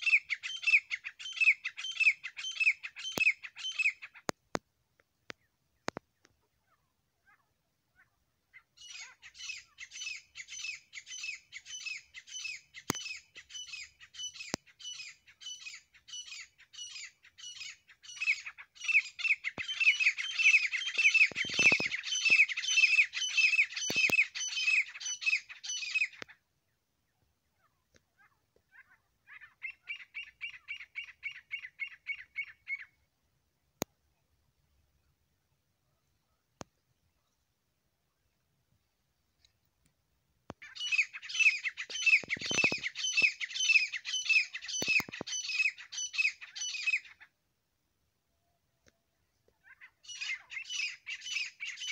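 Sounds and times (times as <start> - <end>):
bird calling harsh repeated notes: 0.0 - 4.3, 8.6 - 26.4, 40.6 - 47.3, 49.7 - 51.9.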